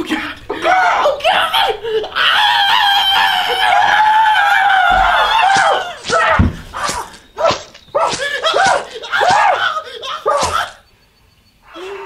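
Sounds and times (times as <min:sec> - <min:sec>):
person screaming: 0:00.6 - 0:07.1.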